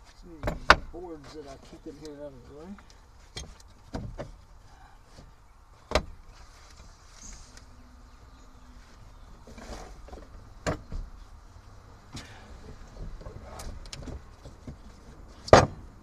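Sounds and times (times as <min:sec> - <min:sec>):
dull knocks and clunks: 0:00.3 - 0:01.9, 0:02.5 - 0:04.5, 0:05.1 - 0:06.2, 0:09.3 - 0:11.3, 0:12.1 - 0:16.0.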